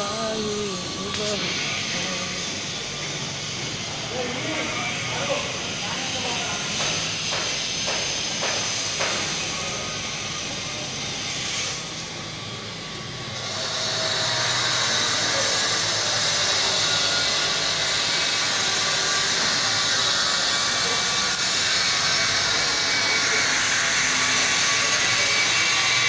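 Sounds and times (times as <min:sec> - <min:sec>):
steady hissing noise: 0:00.0 - 0:14.2.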